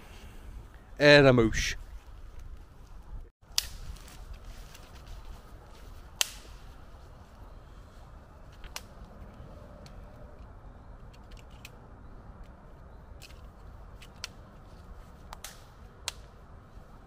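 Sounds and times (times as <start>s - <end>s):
sharp cracks: 3.4s - 4.2s, 6.1s - 6.6s, 8.6s - 9.1s, 15.3s - 16.4s.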